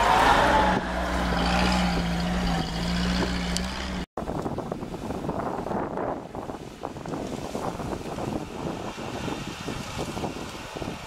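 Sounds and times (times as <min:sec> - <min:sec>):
off-road vehicle engine drone: 0:00.0 - 0:04.6
wind on microphone: 0:00.0 - 0:11.0.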